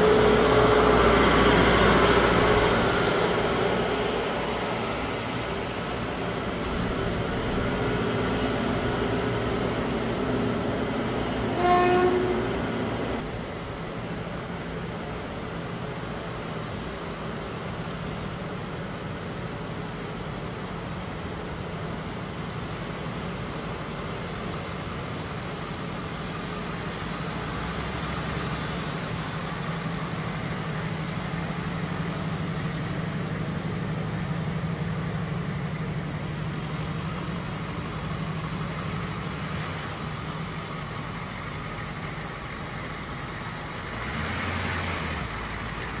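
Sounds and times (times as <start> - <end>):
vehicle engines humming: 0.0 - 46.0.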